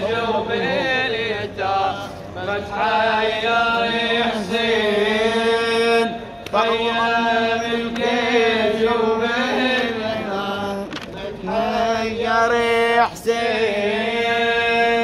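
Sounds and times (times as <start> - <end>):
man chanting into a microphone: 8.6 - 15.0.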